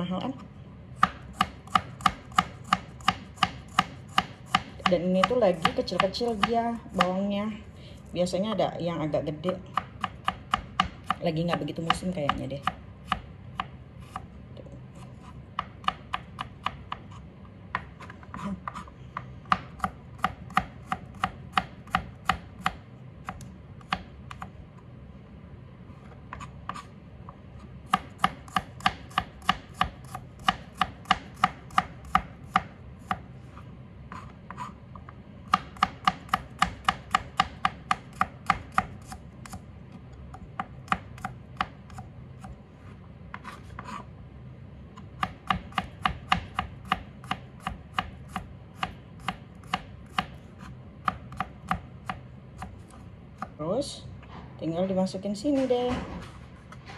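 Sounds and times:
knife chopping on cutting board: 1.0s - 7.2s, 15.0s - 24.5s, 27.9s - 33.2s, 35.5s - 39.6s, 40.6s - 42.5s, 45.2s - 52.7s.

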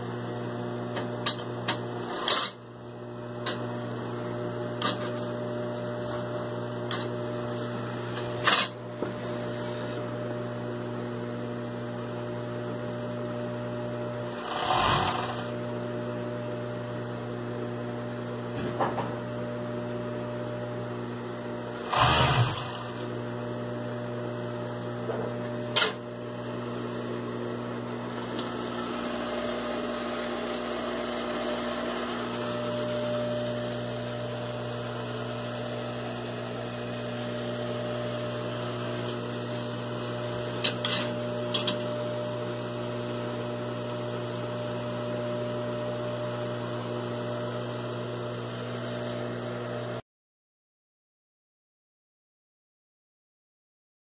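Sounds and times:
sewing machine humming: 2.0s - 2.6s, 14.2s - 15.7s, 21.7s - 23.3s.

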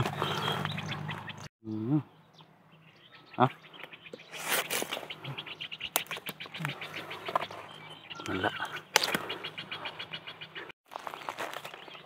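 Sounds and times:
dry bamboo crackling and snapping: 5.9s - 7.5s, 8.9s - 9.3s, 10.9s - 11.8s.

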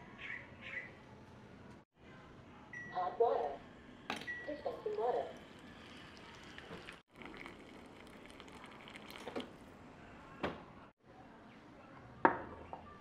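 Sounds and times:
water trickling into mug: 4.7s - 9.7s.

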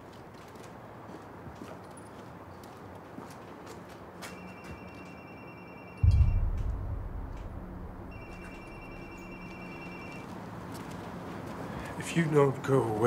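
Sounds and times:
deep low boom: 6.0s - 10.0s
high electronic tone: 6.0s - 10.2s.

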